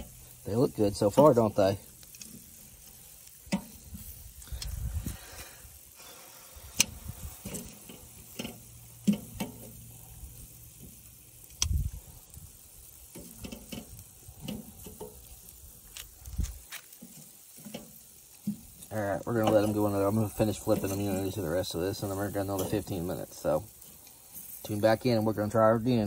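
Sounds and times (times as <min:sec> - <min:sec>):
metal tongs clicking on grill grate: 0:01.9 - 0:04.8, 0:06.7 - 0:16.1, 0:16.8 - 0:21.4, 0:22.0 - 0:23.0
low rumbles: 0:03.9 - 0:05.7, 0:11.6 - 0:12.6.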